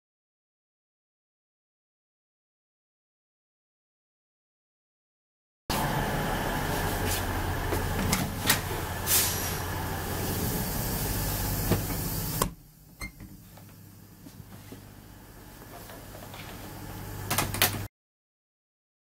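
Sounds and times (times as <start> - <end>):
electric train carriage hum: 5.7 - 17.9.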